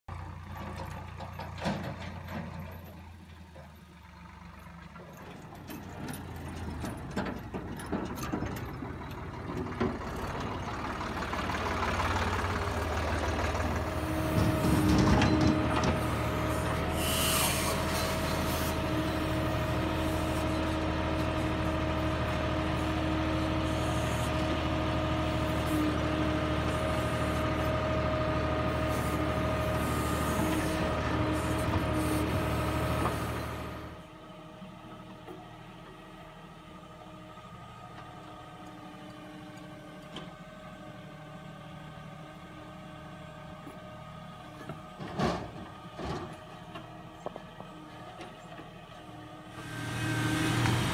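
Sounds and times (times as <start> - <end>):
diesel engine under load: 0.0 - 50.9
hydraulic whine: 14.0 - 20.8, 49.5 - 50.9.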